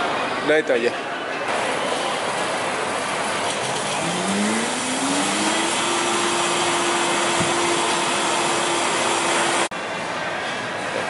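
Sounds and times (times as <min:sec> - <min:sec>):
blender rushing noise: 0:03.5 - 0:09.7
blender motor whine: 0:03.7 - 0:09.7.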